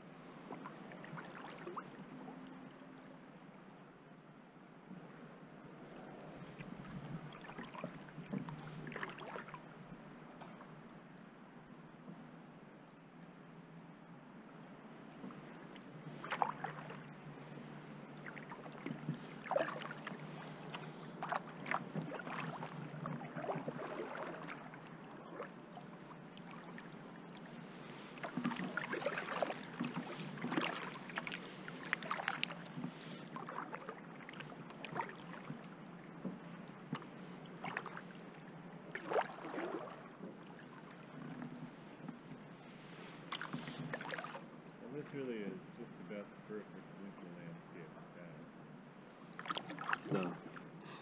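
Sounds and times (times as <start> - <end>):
paddle splashing in water: 0.5 - 2.0, 6.4 - 9.7, 15.2 - 41.8, 42.6 - 44.5, 49.3 - 50.8.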